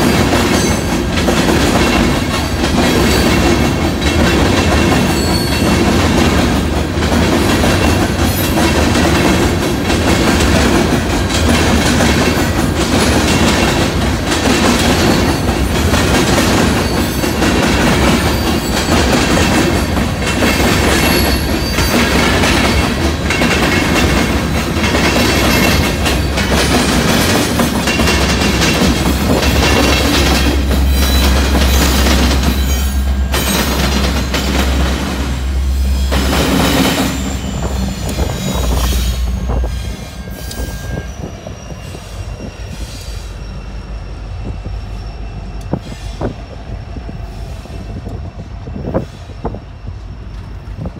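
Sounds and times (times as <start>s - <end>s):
wheels clacking over rail joints: 0.0s - 40.7s
diesel locomotive engine drone: 0.0s - 50.9s
train rumble and rail roar: 0.0s - 50.9s.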